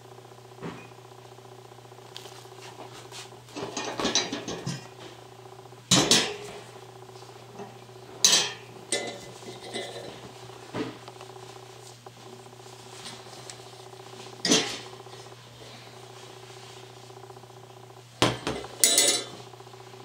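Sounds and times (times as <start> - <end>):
low steady hum: 0.0 - 20.0
wire lanterns clinking and rattling: 3.5 - 4.9, 7.6 - 10.2, 14.4 - 15.2, 18.6 - 19.4
metal clanks: 18.3 - 19.4.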